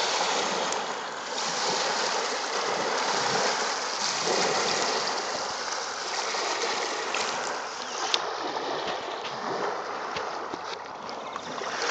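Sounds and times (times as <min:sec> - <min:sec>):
waves lapping on stones: 0:00.0 - 0:11.9
water clicking among pebbles: 0:03.3 - 0:09.4, 0:10.1 - 0:11.9.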